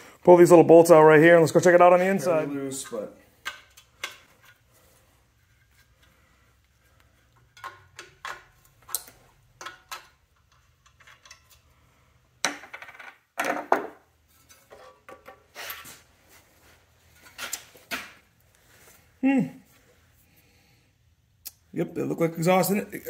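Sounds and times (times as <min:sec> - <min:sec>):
wrench and bolts clinking: 0:07.4 - 0:11.7.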